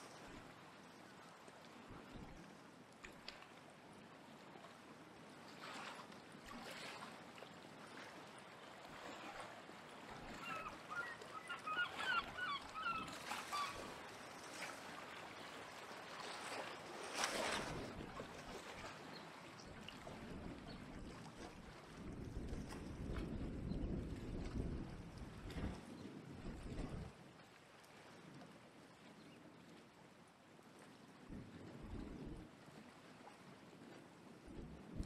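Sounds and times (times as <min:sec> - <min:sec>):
wind: 0:00.0 - 0:35.0
short waterbird calls: 0:10.4 - 0:14.0.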